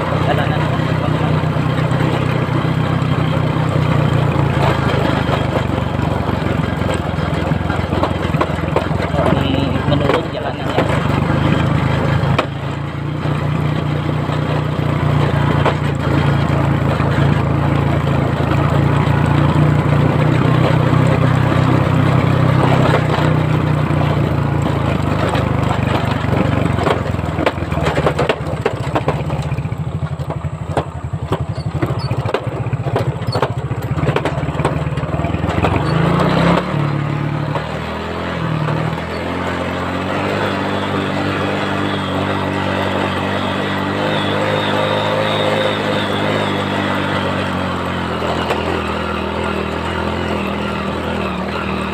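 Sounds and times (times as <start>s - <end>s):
knocks and rattles of bike jolting: 0.0s - 51.9s
small motorcycle engine running: 0.0s - 51.9s.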